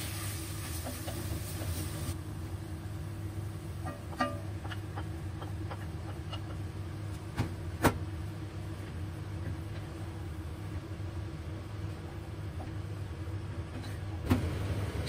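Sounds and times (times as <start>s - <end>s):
steady low hum: 2.1s - 15.0s
spatula tapping and clicking in pot: 3.8s - 6.6s.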